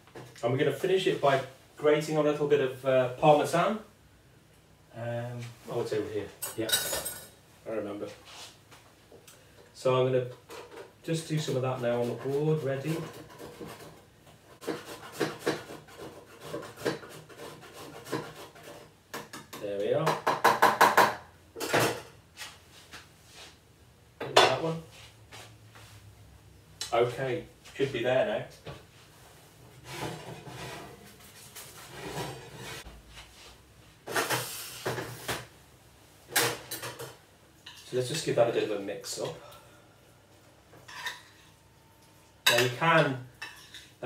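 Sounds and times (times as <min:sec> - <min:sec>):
cheese grating on hand grater: 0:14.6 - 0:18.9.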